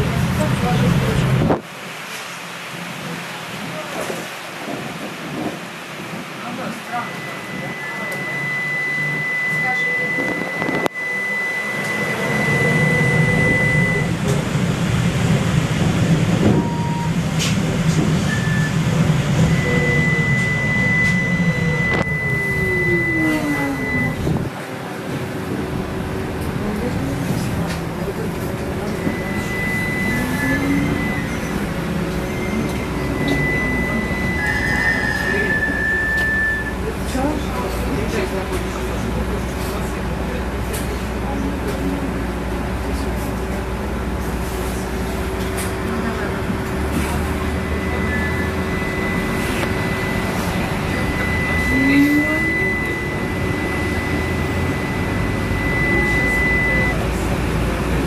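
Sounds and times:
trolleybus cabin rumble: 0.0 - 58.0
thin high steady whistle: 7.0 - 14.1, 19.4 - 24.2, 28.8 - 36.9, 46.9 - 57.1
electric traction drive whine: 7.0 - 24.6, 27.4 - 36.8, 45.1 - 58.0
thin high steady tone: 47.6 - 57.1.

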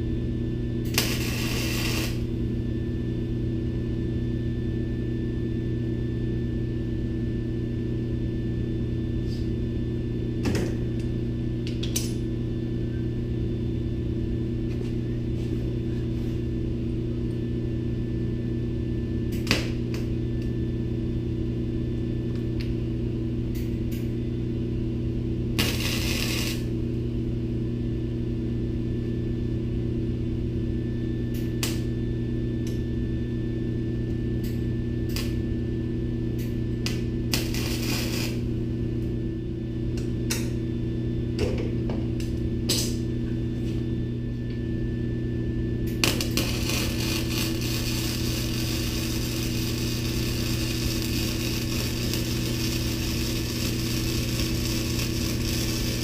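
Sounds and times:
welder hum: 0.6 - 3.4, 25.3 - 27.4, 34.0 - 40.6, 45.8 - 56.0
welding arc crackle: 0.8 - 2.3, 25.6 - 26.7, 35.1 - 35.4, 36.8 - 38.6, 45.9 - 56.0.

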